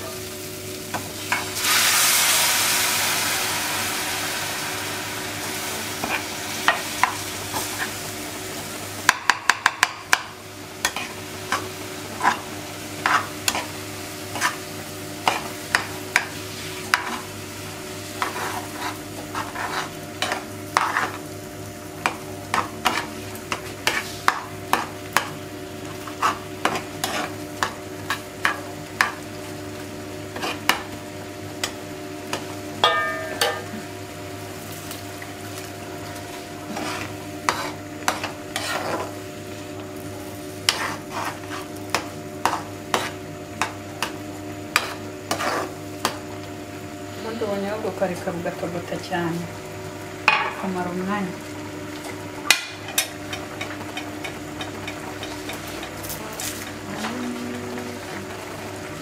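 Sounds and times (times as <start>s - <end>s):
sauce simmering sizzle: 0.2s - 47.9s
metal ladle scraping pan: 36.7s - 39.1s.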